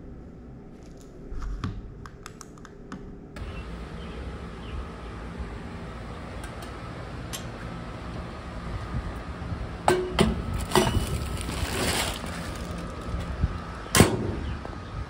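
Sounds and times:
plastic bag rustling: 0:10.5 - 0:13.2.

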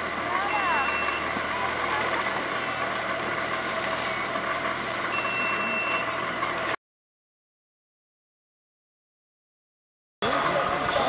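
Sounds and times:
thin high tone: 0:05.0 - 0:06.8.

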